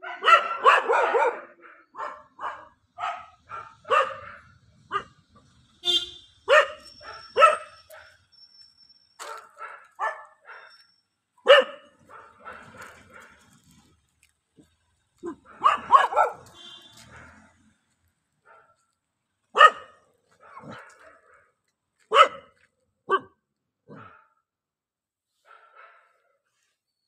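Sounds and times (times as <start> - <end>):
dog barking: 0.0 - 5.4, 6.4 - 8.2, 9.2 - 13.6, 15.2 - 17.7, 18.4 - 18.8, 19.5 - 24.5, 25.5 - 26.4.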